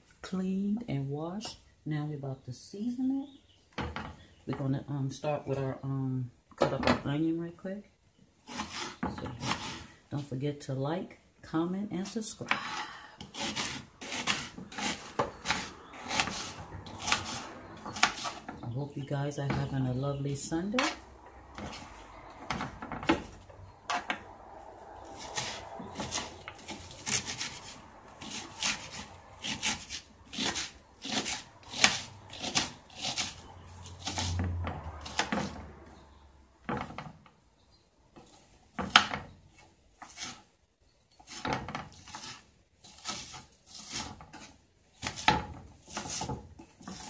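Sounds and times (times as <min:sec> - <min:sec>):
knife chopping on wooden board: 0:08.5 - 0:09.8, 0:12.5 - 0:18.6, 0:20.8 - 0:21.0, 0:21.6 - 0:24.2, 0:25.1 - 0:35.7, 0:41.3 - 0:47.0.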